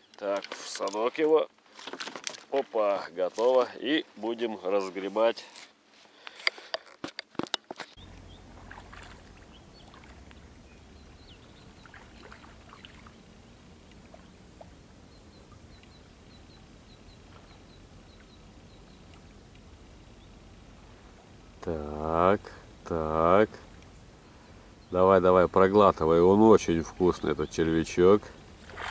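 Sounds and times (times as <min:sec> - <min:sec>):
low steady rumble: 0:08.0 - 0:28.9
faint bird chirps: 0:09.4 - 0:19.4.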